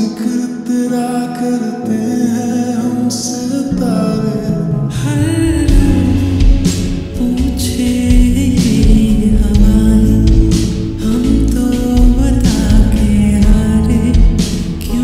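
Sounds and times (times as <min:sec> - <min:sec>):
song with singing: 0:00.0 - 0:15.0
low bass part: 0:03.7 - 0:15.0.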